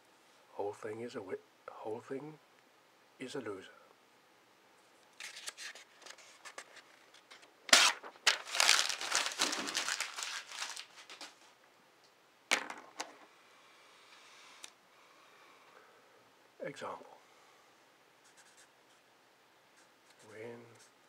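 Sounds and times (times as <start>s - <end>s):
paper ripping: 5.2s - 11.4s
paper crumpling: 5.2s - 11.6s
paper rustling: 5.2s - 11.6s.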